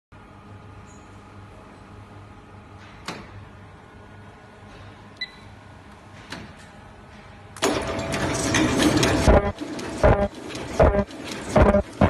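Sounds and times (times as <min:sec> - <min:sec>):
low electrical hum: 0:00.2 - 0:12.0
loud mechanical clatter: 0:06.2 - 0:12.0.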